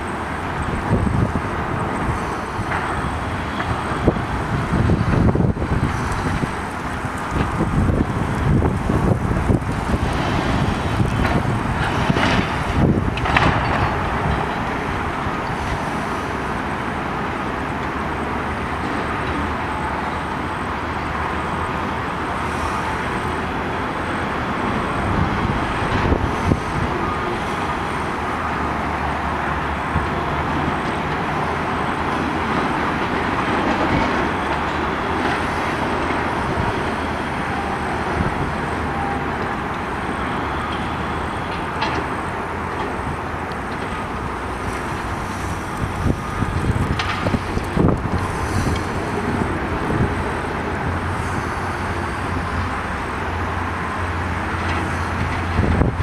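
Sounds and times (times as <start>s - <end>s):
distant heavy machinery: 0.0s - 56.0s
traffic rumble: 0.0s - 56.0s.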